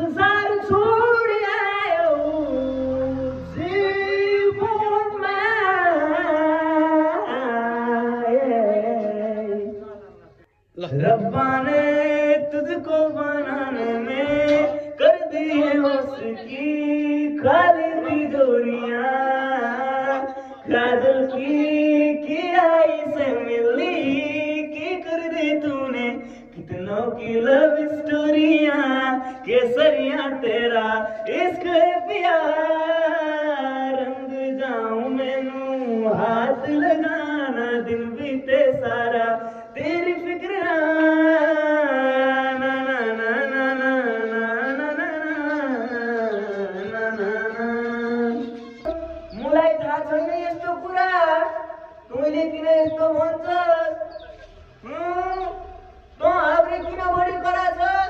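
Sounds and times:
young man singing solo: 0:00.0 - 0:09.8.

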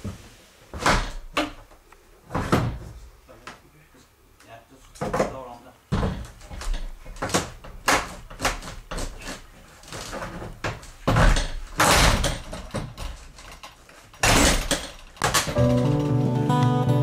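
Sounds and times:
handling knocks and bumps: 0:05.0 - 0:16.3.

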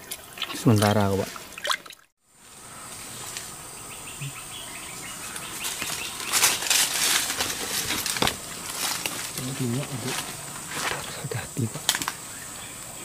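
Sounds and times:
loud rustling: 0:05.4 - 0:11.1.

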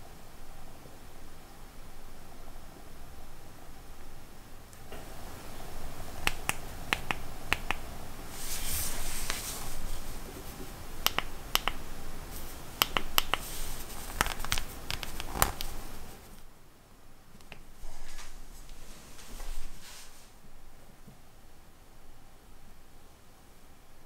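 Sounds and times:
sharp plastic clicks: 0:11.0 - 0:11.8
plastic film crinkling: 0:13.4 - 0:16.4.

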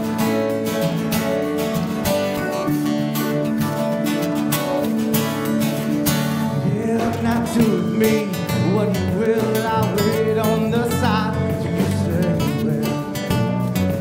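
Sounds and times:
electric bass: 0:00.0 - 0:14.0
strummed acoustic guitars: 0:00.0 - 0:14.0
man singing lead vocal: 0:06.5 - 0:14.0.

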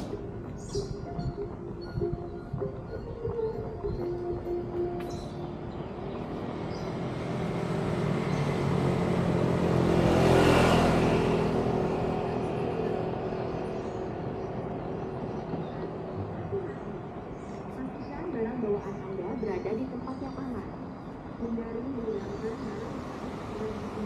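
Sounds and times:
vehicle passing by: 0:05.2 - 0:18.0, 0:22.4 - 0:24.0.

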